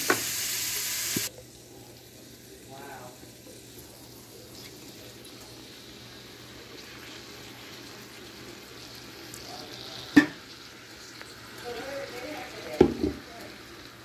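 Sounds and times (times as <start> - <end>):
pan sizzling: 0.0 - 14.0
sauce pouring into a pan: 3.2 - 14.0.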